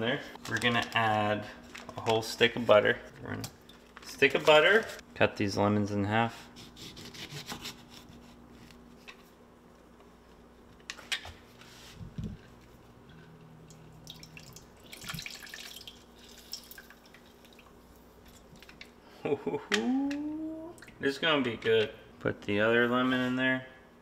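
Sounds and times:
juice dripping into pan: 13.6 - 18.9.

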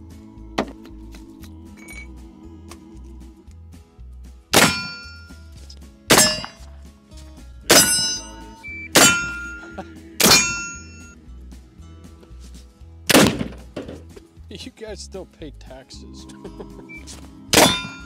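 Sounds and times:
background music with steady beat: 0.0 - 18.0
rifle shots with metallic ring: 4.6 - 5.3, 6.1 - 6.6, 7.7 - 8.4, 9.0 - 9.6, 17.6 - 18.0.

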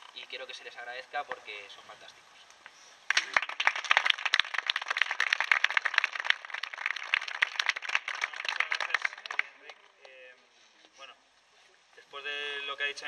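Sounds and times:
crowd applauding: 3.1 - 9.6.

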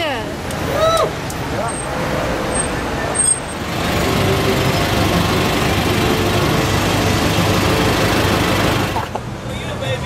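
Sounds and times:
street traffic passing cars: 0.0 - 10.0.

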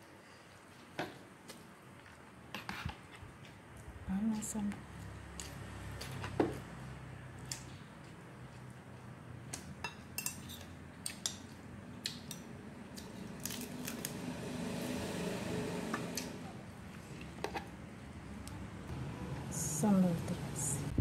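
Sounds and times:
spoon clinking on ceramic plates: 9.8 - 11.5.

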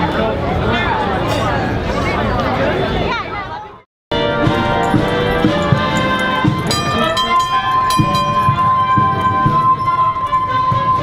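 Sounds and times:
instrumental music with held chords: 4.2 - 11.0.

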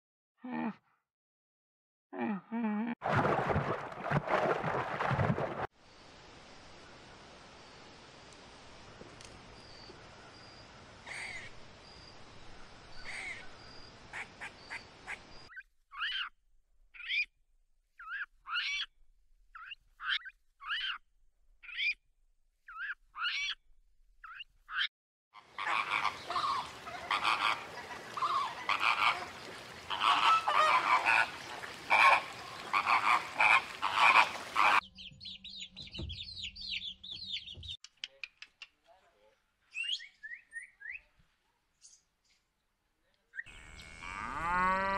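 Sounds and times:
animal calls: 24.2 - 34.8
chicks peeping: 34.9 - 37.8.

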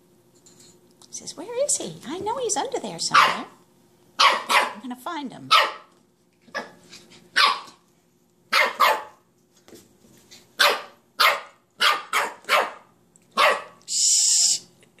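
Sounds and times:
puppy barking: 3.1 - 3.6, 4.2 - 4.8, 5.5 - 7.8, 8.5 - 9.3, 10.6 - 13.8.

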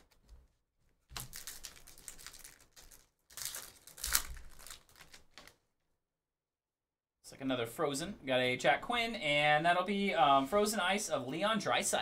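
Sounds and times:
wrappers tearing and crinkling: 1.1 - 5.5.

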